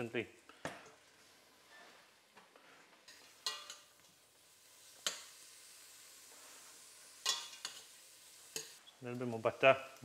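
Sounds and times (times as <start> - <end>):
prawns sizzling in a pan: 3.0 - 10.0.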